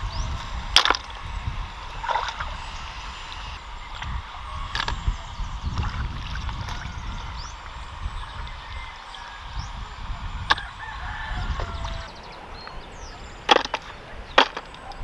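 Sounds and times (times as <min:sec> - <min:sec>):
wading in shallow muddy water: 0:00.0 - 0:15.0.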